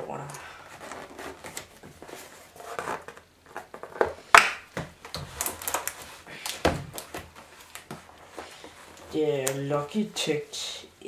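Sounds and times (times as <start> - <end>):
cardboard box rustling and scraping: 0.6 - 4.0.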